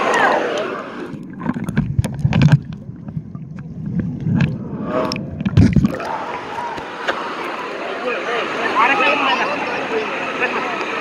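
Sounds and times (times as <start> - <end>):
muffled underwater sloshing: 0.8 - 7.7
underwater clicks and knocks: 1.1 - 6.0.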